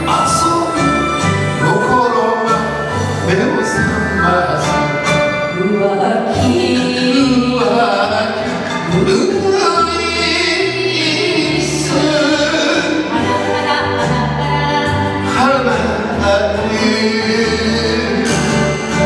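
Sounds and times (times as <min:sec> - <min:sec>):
karaoke backing track: 0:00.0 - 0:19.0
man singing: 0:00.0 - 0:19.0
woman singing: 0:10.4 - 0:15.8.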